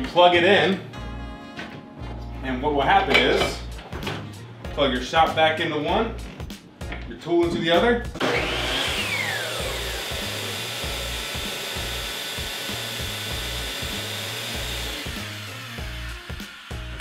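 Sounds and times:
miter saw motor whine: 8.2s - 17.0s
shop vacuum running: 8.2s - 17.0s.

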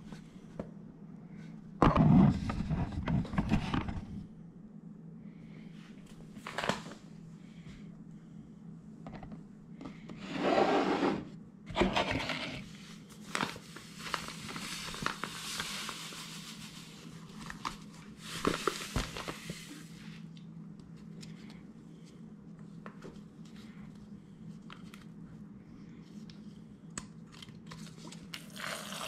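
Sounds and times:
cutting board scraping on counter: 10.2s - 12.6s
powder pouring into bowl: 28.4s - 29.0s.

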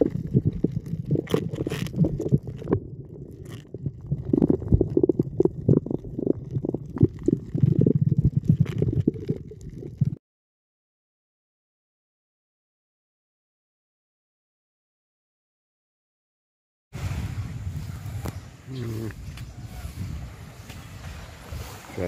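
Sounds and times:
crackles: 0.0s - 10.2s, 17.0s - 22.0s
muffled underwater rumbling and knocking: 0.0s - 10.2s.

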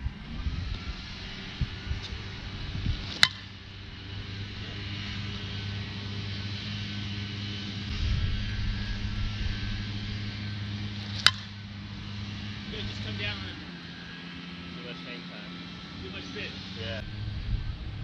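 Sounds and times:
bat striking softball: 2.9s - 3.6s, 10.9s - 11.7s.

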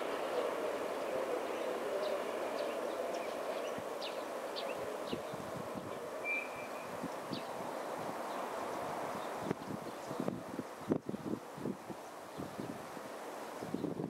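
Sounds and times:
distant diesel locomotive engine: 0.0s - 9.4s
bird chirping: 6.2s - 7.5s.

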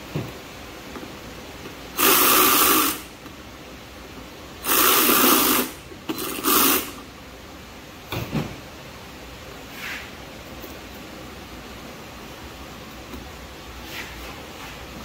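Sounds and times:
electric ratchet running: 2.0s - 3.1s, 4.6s - 7.0s.

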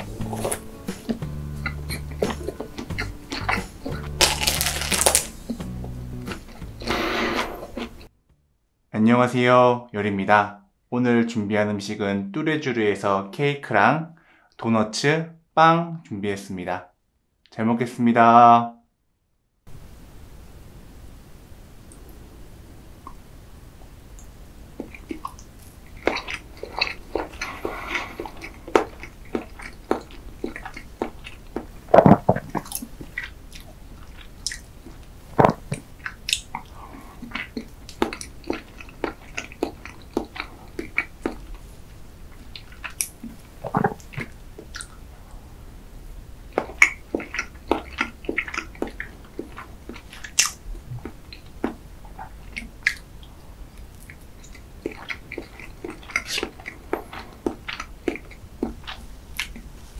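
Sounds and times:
chewing with wet mouth smacks: 0.0s - 6.6s, 24.2s - 45.0s, 46.5s - 59.8s.

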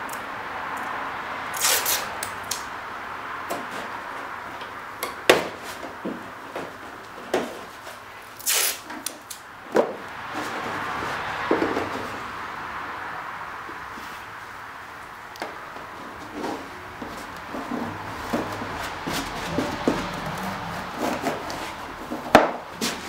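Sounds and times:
masking tape pulled and torn: 1.5s - 2.7s, 8.4s - 9.4s.

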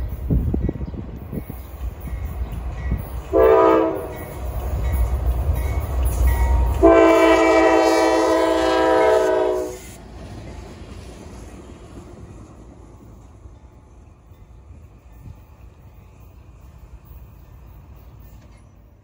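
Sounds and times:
low rumble of train: 0.0s - 19.0s
locomotive air horn blasts: 3.3s - 4.2s, 6.7s - 10.0s.

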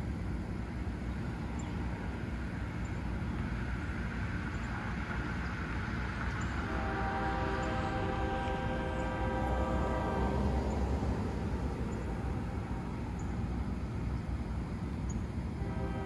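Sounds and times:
diesel locomotive rumble: 0.0s - 16.0s
locomotive horn chord: 6.5s - 13.5s, 15.6s - 16.0s.

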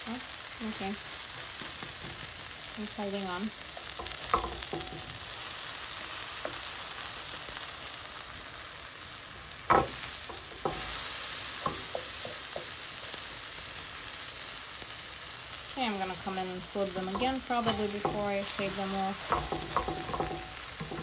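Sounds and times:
fritters sizzling in frying pan: 0.0s - 21.0s
spatula knocking pan: 3.7s - 5.4s, 9.7s - 13.1s, 16.0s - 21.0s.

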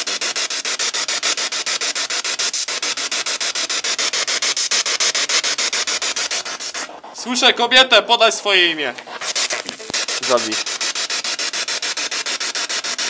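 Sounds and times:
pulsing radio static hiss: 8.5s - 10.8s.

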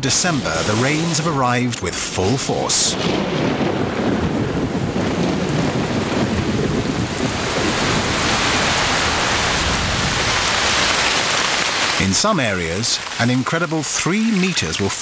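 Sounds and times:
heavy rain on foliage: 0.1s - 15.0s
low rumble of thunder: 0.4s - 10.9s.

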